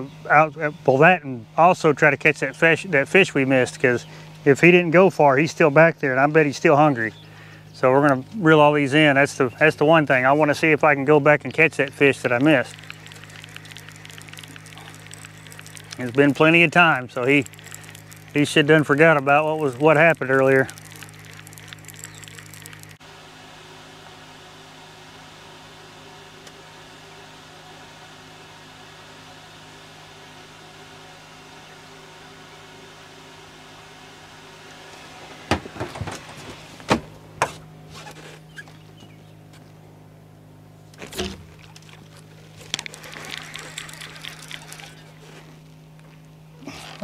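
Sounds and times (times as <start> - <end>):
boat motor humming: 0.0 - 24.9, 30.8 - 47.0.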